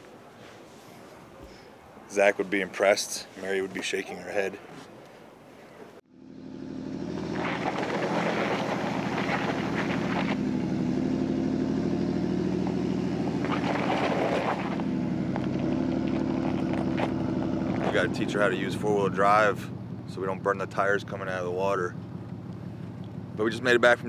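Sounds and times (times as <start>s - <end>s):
engine running steadily: 21.8s - 24.0s.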